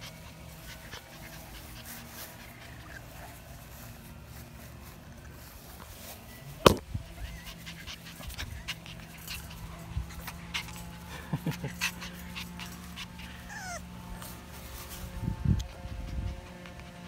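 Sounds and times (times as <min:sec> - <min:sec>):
puppy panting: 0:00.0 - 0:04.0, 0:07.1 - 0:17.0
puppy whimpering and whining: 0:07.1 - 0:11.0, 0:11.8 - 0:14.4.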